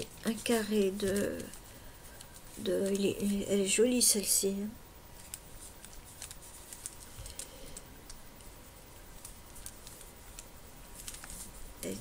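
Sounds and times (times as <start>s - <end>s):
paper pages turning: 0.0s - 3.4s, 5.2s - 7.8s, 8.4s - 12.0s.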